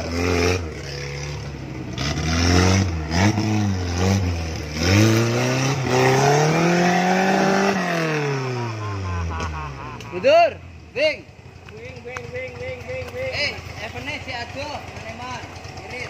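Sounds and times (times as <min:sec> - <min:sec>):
engine revving hard: 0:00.0 - 0:10.1.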